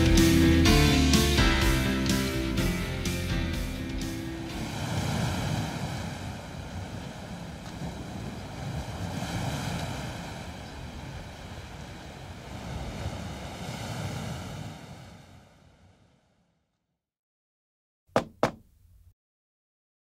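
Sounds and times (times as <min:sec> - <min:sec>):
surf-like rushing noise: 0:04.1 - 0:15.7.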